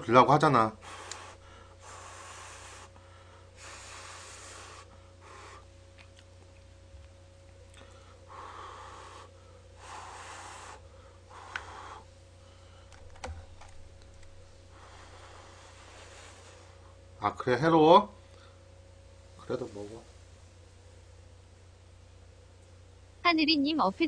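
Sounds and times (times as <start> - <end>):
man breathing: 0.8 - 5.8, 7.7 - 13.7, 14.4 - 17.0.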